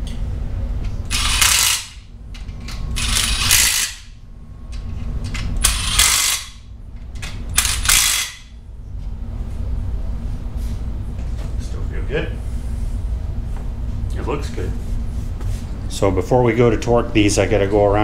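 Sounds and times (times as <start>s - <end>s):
impact driver bursts: 1.1s - 2.0s, 5.6s - 6.6s, 7.6s - 8.5s.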